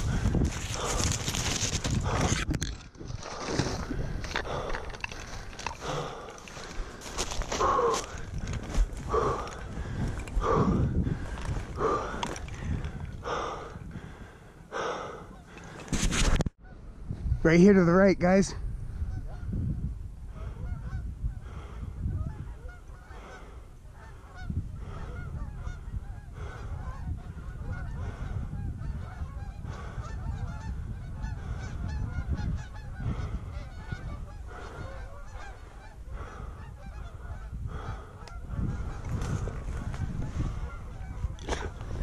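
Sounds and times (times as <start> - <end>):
geese honking: 22.2 - 41.9.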